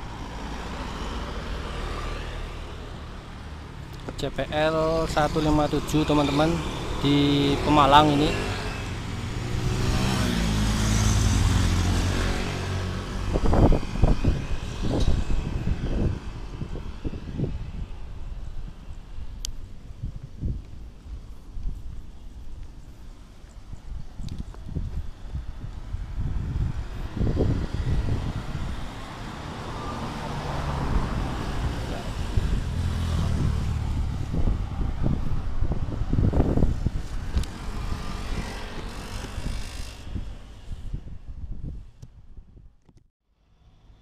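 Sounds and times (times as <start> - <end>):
motorcycle passing by: 0.0 - 3.7, 4.6 - 18.6, 25.2 - 41.6
wind buffeting microphone: 5.2 - 42.9.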